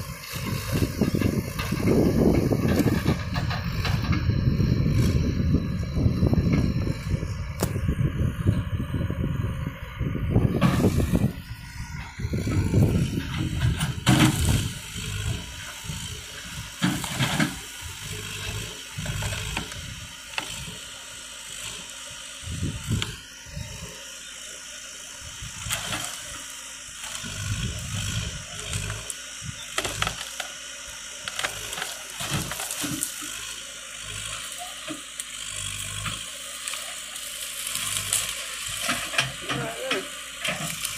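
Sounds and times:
diesel engine running: 0.0 - 40.9
wood cracking and breaking: 31.2 - 33.4, 35.6 - 40.9.

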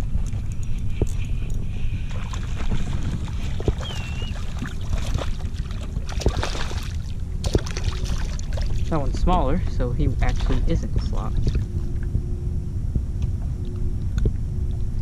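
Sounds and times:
water splashing and sloshing: 0.0 - 12.2
steady low rumble: 0.0 - 15.0.

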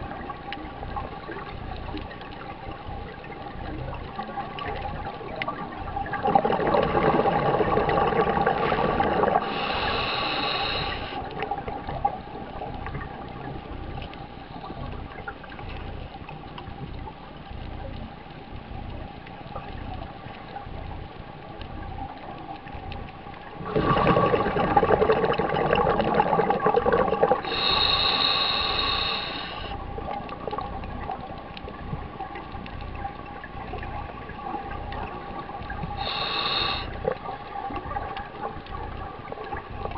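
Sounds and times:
exhaled bubbles rumbling underwater: 0.0 - 39.9
hissing inhale through regulator: 7.8 - 12.8, 23.6 - 25.4, 27.3 - 29.9, 35.8 - 37.6.

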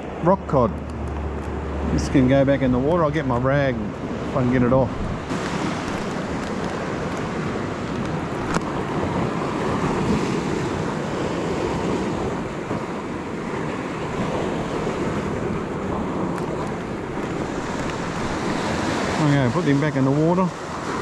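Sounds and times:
ocean surf on rocks: 0.0 - 21.0
wind buffeting microphone: 0.0 - 21.0.

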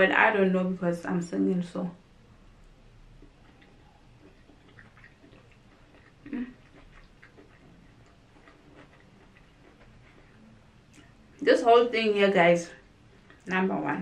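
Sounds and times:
faint chewing: 2.6 - 11.5, 12.8 - 13.6.

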